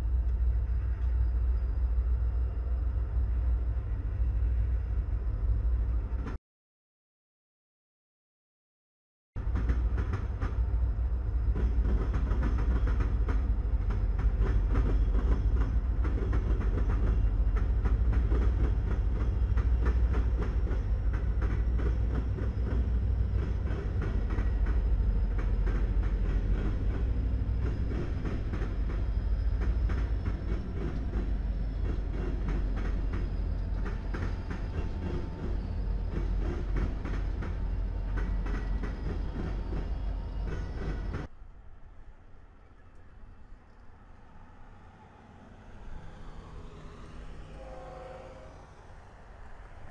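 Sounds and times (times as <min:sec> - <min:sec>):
train wheels clicking over rail joints: 0:09.4 - 0:10.8, 0:11.4 - 0:41.3
locomotive engine rumble: 0:09.4 - 0:49.9.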